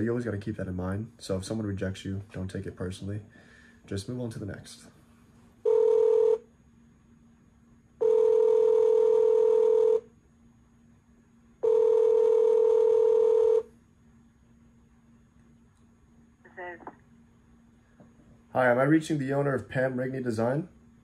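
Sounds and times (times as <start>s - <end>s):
telephone ringback tone: 5.6s - 6.4s, 8.0s - 10.0s, 11.6s - 13.7s.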